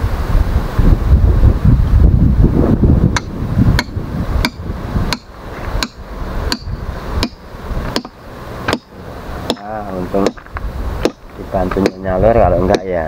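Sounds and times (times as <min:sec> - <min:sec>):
wind on microphone: 0:00.0 - 0:13.0
hammer striking stone: 0:03.2 - 0:08.9, 0:09.5 - 0:13.0.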